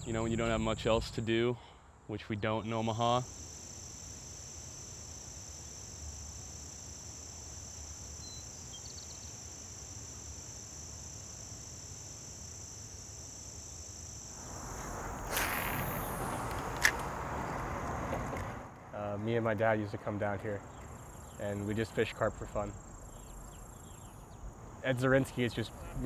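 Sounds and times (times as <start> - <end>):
insects trilling: 0.0 - 18.5, 19.8 - 26.0
faint chirps: 8.0 - 9.4
even rushing noise: 14.4 - 18.7.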